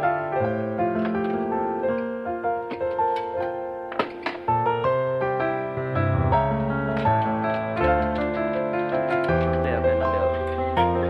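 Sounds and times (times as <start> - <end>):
piano music: 0.0 - 11.0
bass line: 5.5 - 11.0.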